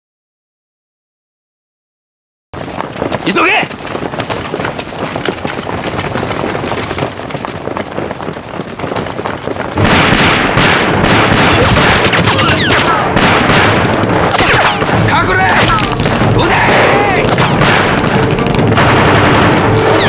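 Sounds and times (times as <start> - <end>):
rapid gunfire: 8.7 - 20.0
explosions: 9.8 - 20.0.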